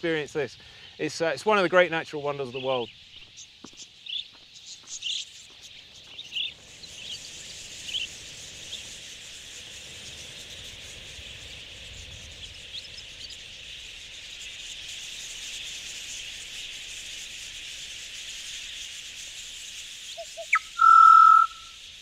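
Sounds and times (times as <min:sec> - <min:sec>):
flock of budgerigars chattering: 0:00.2 - 0:21.7
budgerigars chirping: 0:20.2 - 0:21.7.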